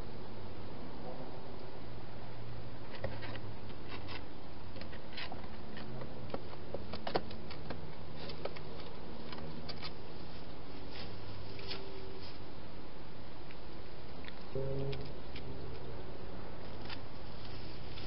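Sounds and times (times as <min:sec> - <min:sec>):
hedgehog eating clicks and crunches: 0:14.2 - 0:15.5.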